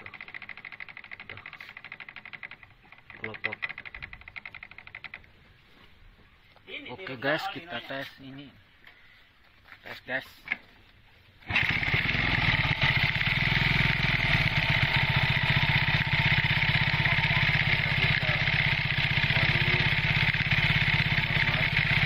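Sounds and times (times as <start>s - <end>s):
scooter engine running: 0.0s - 5.2s, 11.4s - 22.0s.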